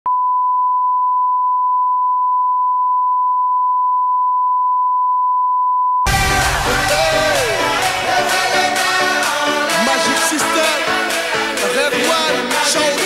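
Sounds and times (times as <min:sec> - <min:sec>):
music: 0:06.1 - 0:13.0.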